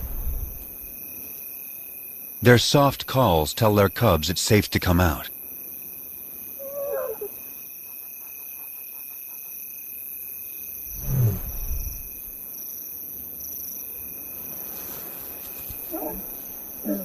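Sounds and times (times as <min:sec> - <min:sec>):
night insects shrilling: 0:05.2 - 0:17.0.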